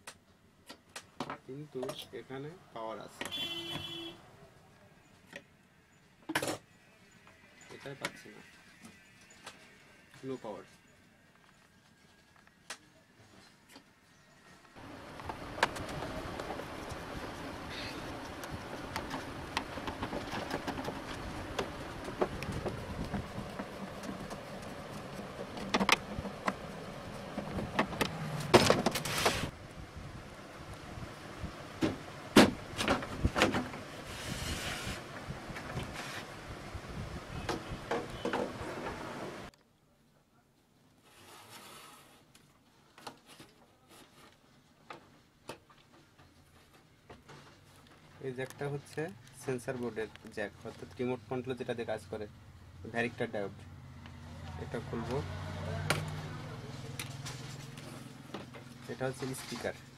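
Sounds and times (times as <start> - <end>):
background noise: 0.0 - 59.9
hiss: 34.0 - 35.0.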